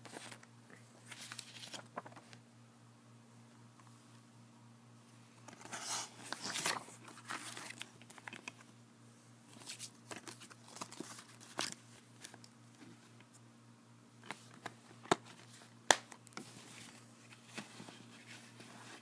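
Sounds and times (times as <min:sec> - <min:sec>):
faint low hum: 0:00.0 - 0:19.0
paper and plastic crinkling: 0:01.0 - 0:02.4, 0:05.4 - 0:08.7, 0:09.5 - 0:12.9.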